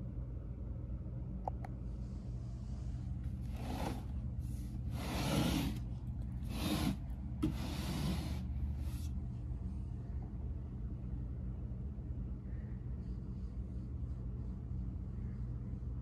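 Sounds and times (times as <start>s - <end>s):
steady low hum: 0.0s - 16.0s
handling rustling and rubbing: 2.6s - 9.3s.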